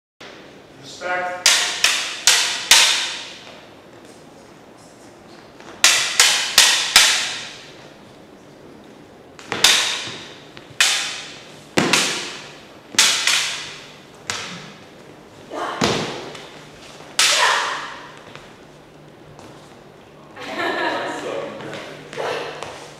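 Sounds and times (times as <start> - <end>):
prop lightsaber blades clacking: 1.4 - 3.4, 5.6 - 7.7, 9.4 - 14.8, 16.2 - 18.2.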